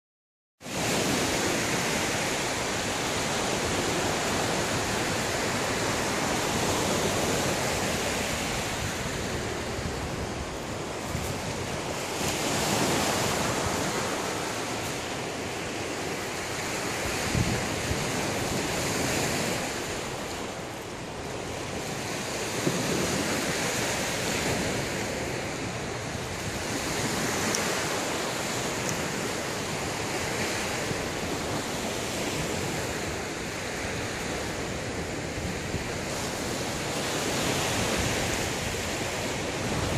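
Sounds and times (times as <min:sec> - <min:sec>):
waves breaking on rocky shore: 0:00.6 - 0:39.9
wind buffeting microphone: 0:00.7 - 0:39.9.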